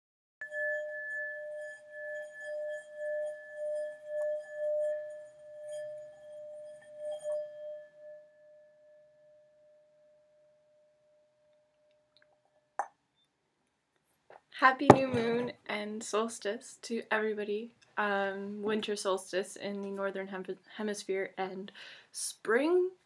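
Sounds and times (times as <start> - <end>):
singing bowl ringing: 0.4 - 11.4.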